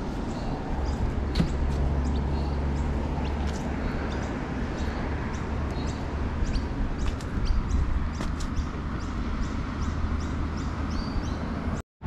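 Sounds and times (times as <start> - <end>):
steady low rumble: 0.0 - 10.4
small birds chirping: 0.0 - 11.8.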